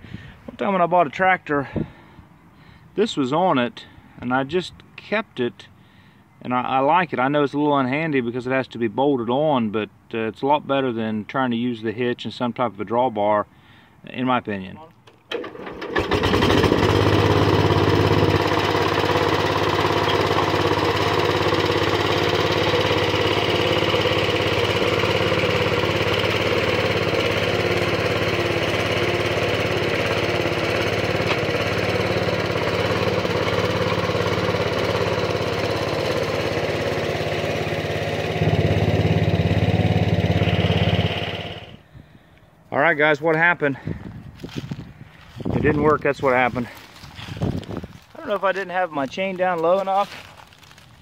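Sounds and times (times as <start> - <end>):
garden tractor engine running: 15.1 - 41.8, 44.4 - 51.0.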